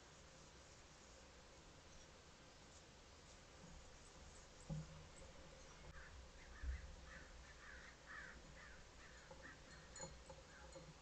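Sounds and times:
harsh bird calls: 0:05.6 - 0:10.8.

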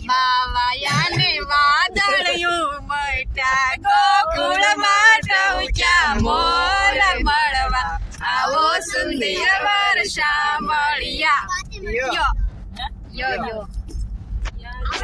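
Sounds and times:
adults and child singing: 0:00.0 - 0:11.5
car rumble: 0:00.0 - 0:15.0.

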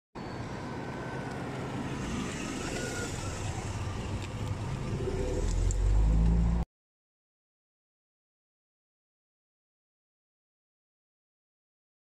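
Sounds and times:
car engine rumbling: 0:00.2 - 0:06.6.

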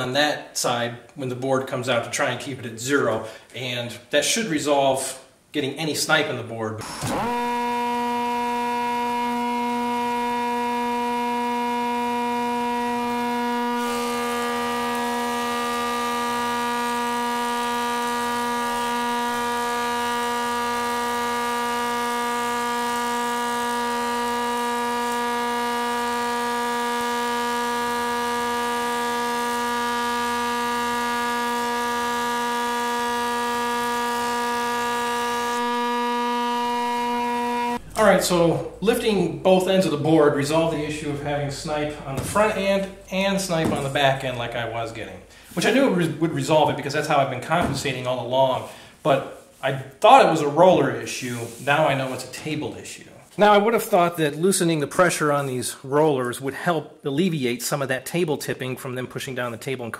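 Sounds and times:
board being planed: 0:06.8 - 0:39.0, 0:39.8 - 0:46.6
thickness planer whining: 0:06.8 - 0:48.2.

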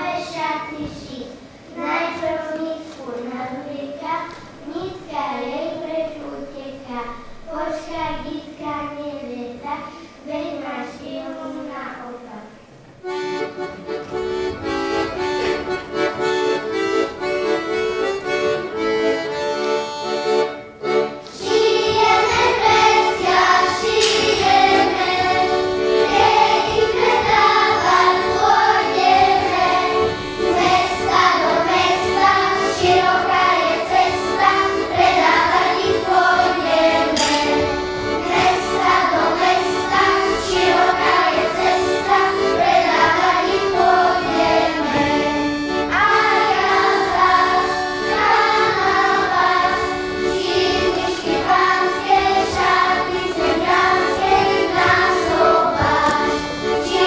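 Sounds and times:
children singing: 0:00.0 - 0:01.1, 0:21.2 - 0:57.0
accordion folk music: 0:00.0 - 0:57.0.

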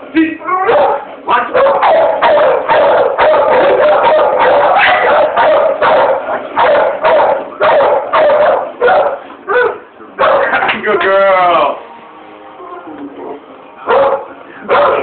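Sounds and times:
dog barking loudly: 0:00.6 - 0:10.7, 0:13.9 - 0:15.0.

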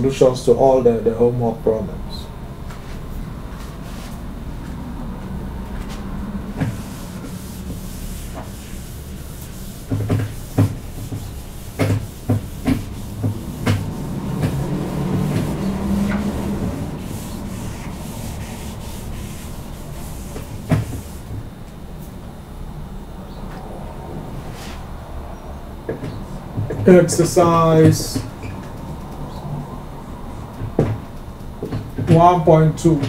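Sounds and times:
eraser rubbing on whiteboard: 0:06.6 - 0:21.3
knocks against whiteboard: 0:09.9 - 0:16.3, 0:20.6 - 0:21.0.

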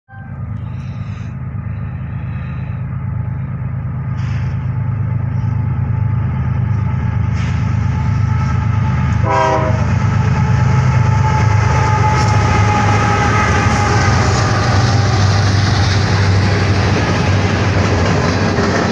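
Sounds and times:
diesel locomotive rumble: 0:00.1 - 0:18.9
locomotive horn: 0:09.1 - 0:10.0, 0:11.1 - 0:15.4.

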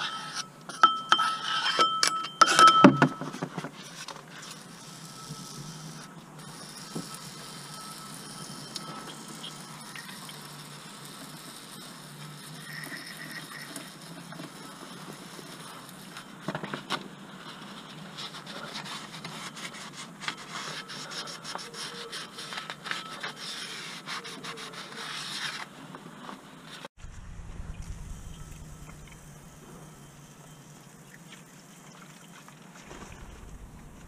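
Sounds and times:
steady background hum: 0:25.6 - 0:34.0.

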